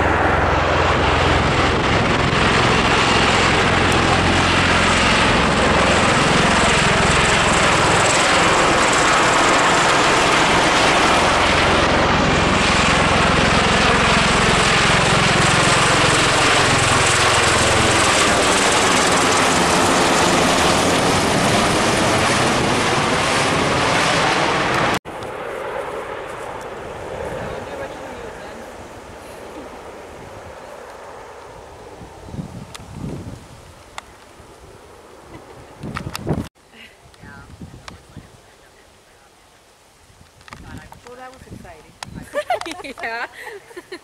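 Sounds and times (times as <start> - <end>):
broad high engine rush: 0.0 - 25.0
aircraft rotors beating overhead: 0.0 - 44.0.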